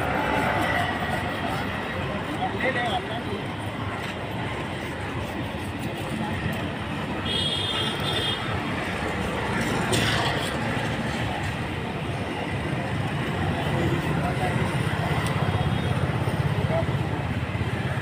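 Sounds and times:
faint voices: 0:00.0 - 0:07.2
busy street rumble: 0:00.0 - 0:18.0.

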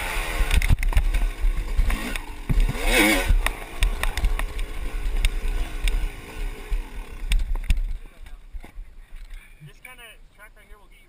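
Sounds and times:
dirt bike engine revving: 0:00.0 - 0:08.0
knocks over rough ground: 0:00.5 - 0:06.1.

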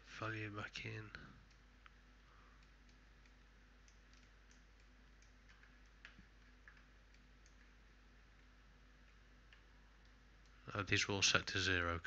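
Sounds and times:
computer mouse clicks: 0:02.6 - 0:10.6.

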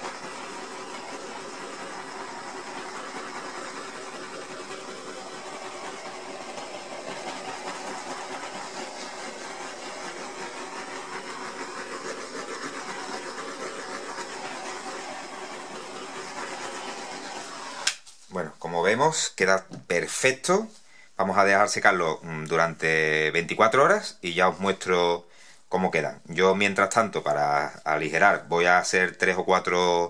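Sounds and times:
gas torch hissing: 0:00.0 - 0:18.0.

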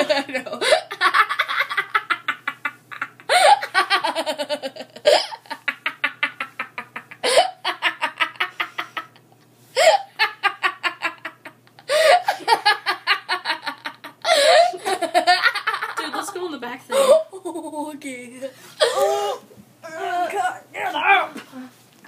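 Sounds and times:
young woman laughing: 0:00.0 - 0:09.2, 0:09.8 - 0:17.8.

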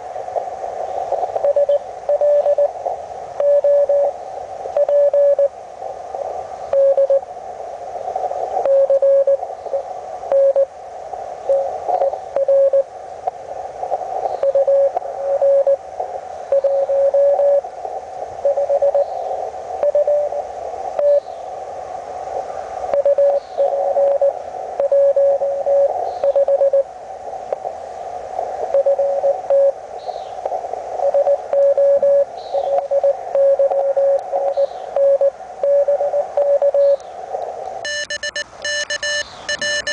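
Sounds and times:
receiver hiss: 0:00.0 - 0:39.9
morse code tone: 0:01.4 - 0:02.7, 0:03.4 - 0:04.1, 0:04.8 - 0:05.5, 0:06.7 - 0:07.2, 0:08.6 - 0:09.4, 0:10.3 - 0:10.7, 0:11.5 - 0:12.9, 0:14.4 - 0:15.8, 0:16.5 - 0:17.6, 0:18.4 - 0:19.0, 0:19.8 - 0:20.4, 0:21.0 - 0:21.2, 0:23.0 - 0:26.9, 0:28.7 - 0:29.8, 0:31.0 - 0:37.0, 0:37.8 - 0:39.9.

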